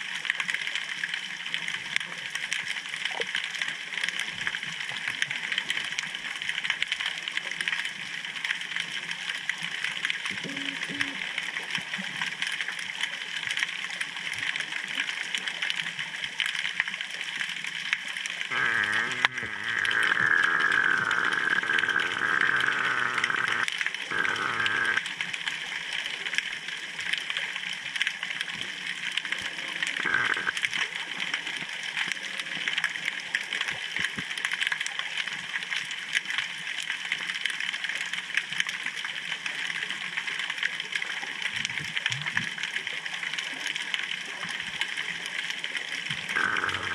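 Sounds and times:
underwater crackling hiss: 8.9 - 12.4, 16.7 - 27.0, 28.4 - 40.6, 41.5 - 46.9
wavering bleat-like tone: 18.5 - 25.0, 46.4 - 46.9.

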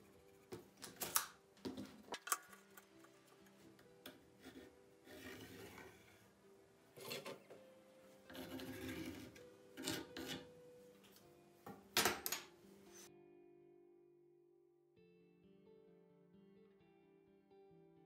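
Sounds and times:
pencil scratching on wood: 0.0 - 0.8, 4.3 - 6.2, 8.2 - 10.5
faint background music: 0.0 - 18.0.

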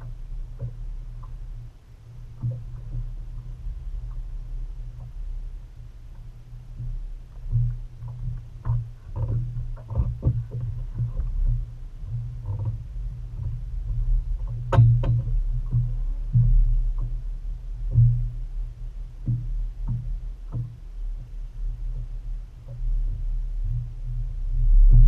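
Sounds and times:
steady low rumble: 0.0 - 25.0
knocks and clunks on deck: 6.8 - 12.8, 13.4 - 17.1, 19.2 - 21.3.

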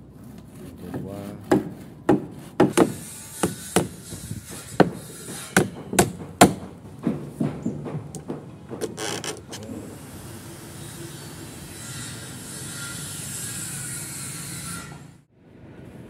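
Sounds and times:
hammer driving nails into wood: 1.5 - 9.0.

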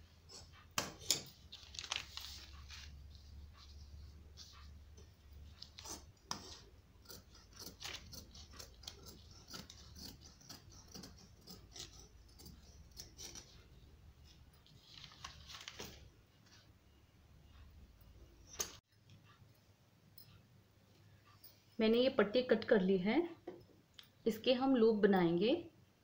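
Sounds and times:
paper and fabric rustling: 1.2 - 4.8, 14.6 - 16.7
shears snipping cloth: 5.6 - 13.6.

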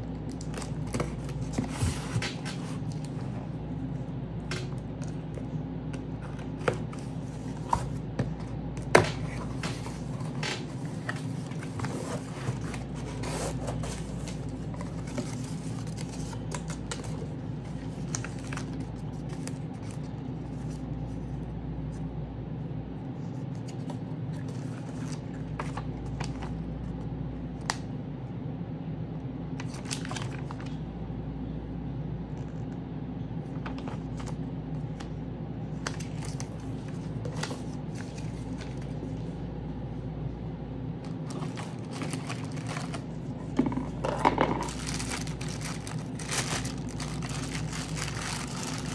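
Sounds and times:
steady low hum: 0.0 - 48.9
packaging rustling and clicking: 41.1 - 43.2, 43.8 - 48.9.

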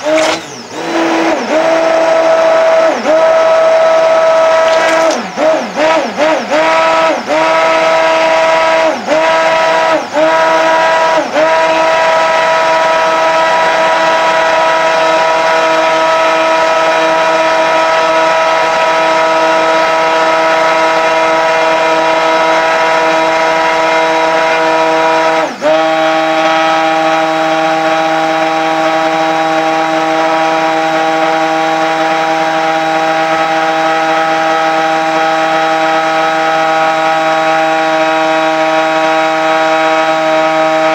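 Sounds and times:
stick blender motor running: 0.0 - 15.8.

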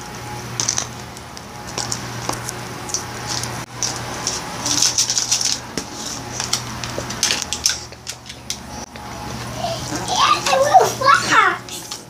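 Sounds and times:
crackling rustle: 0.4 - 9.6.

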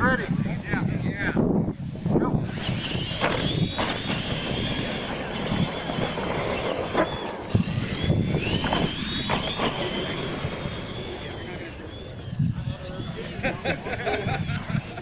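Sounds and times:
electric motor and gear whine: 0.0 - 15.0
tyres rumbling on dirt: 1.3 - 15.0
trucks knocking over ramps: 2.4 - 12.4.

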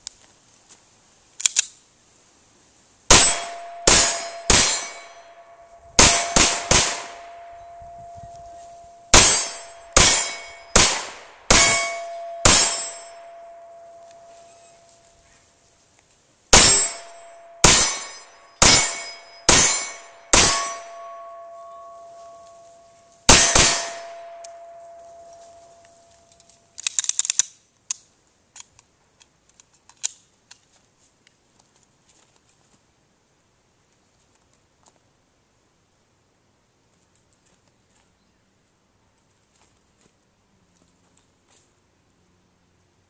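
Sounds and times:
steel target clanging and ringing: 3.1 - 15.0, 16.6 - 26.4
handgun shots: 6.0 - 7.5, 9.2 - 14.2, 16.6 - 20.9, 23.3 - 24.7.

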